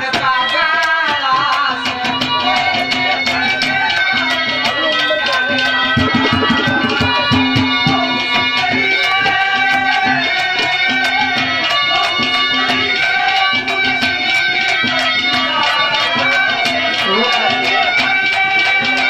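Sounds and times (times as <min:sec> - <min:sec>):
fast hand-drum rhythm: 0:05.6 - 0:08.6
harmonium holding steady notes: 0:09.4 - 0:19.0.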